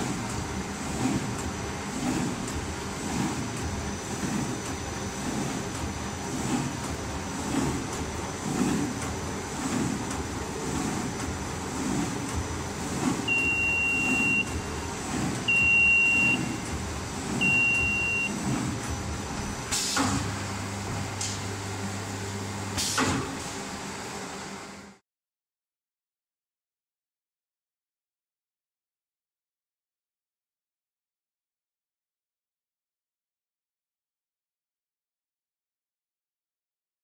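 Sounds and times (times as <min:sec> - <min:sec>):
paper cutting machine running: 0:00.0 - 0:23.6
high beeps: 0:13.3 - 0:14.6, 0:15.5 - 0:16.6, 0:17.4 - 0:18.3.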